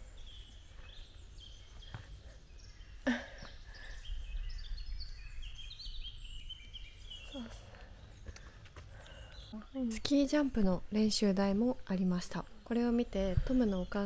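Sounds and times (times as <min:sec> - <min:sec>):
low wind rumble: 0:00.0 - 0:07.9
songbirds chirping: 0:00.0 - 0:14.0.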